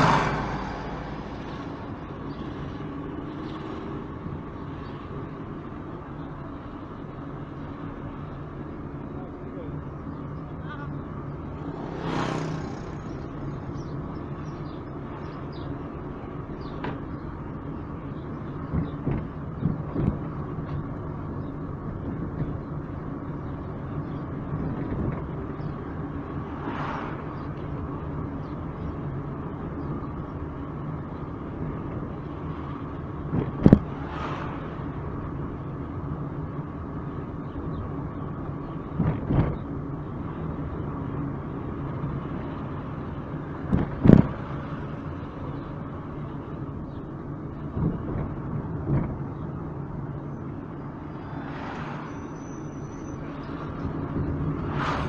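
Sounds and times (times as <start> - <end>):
passing car whoosh: 0.0 - 1.9, 11.6 - 13.3, 26.5 - 27.4, 33.6 - 34.8, 51.1 - 52.6, 53.5 - 55.0
car engine and road hum: 0.0 - 55.0.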